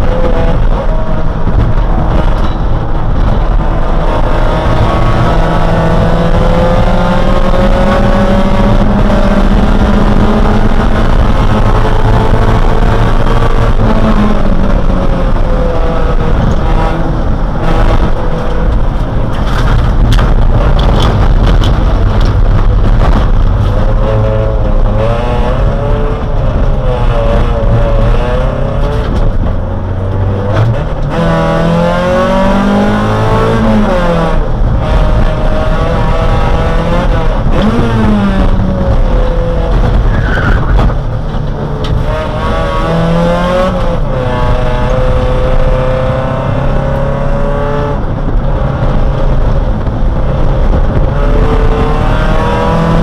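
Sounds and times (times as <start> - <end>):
race car engine: 0.0 - 53.0
road noise: 0.0 - 53.0.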